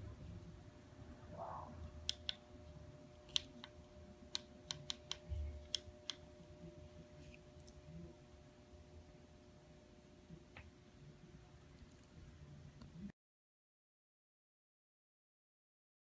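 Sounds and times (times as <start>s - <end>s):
steady low hum: 0.0s - 13.1s.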